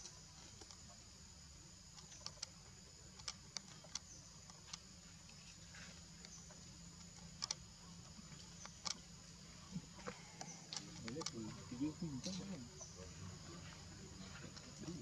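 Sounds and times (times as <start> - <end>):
high-pitched insect hum: 0.0 - 15.0
monkey chewing leaf clicks: 2.0 - 5.4, 7.0 - 7.6, 8.3 - 9.1, 9.9 - 11.6, 12.2 - 12.7.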